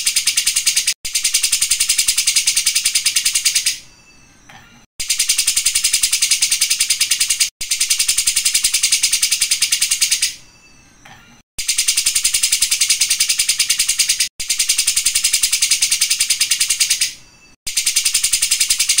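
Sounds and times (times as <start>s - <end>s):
bird singing shrill rattling trill: 0.0s - 11.0s, 11.6s - 19.0s.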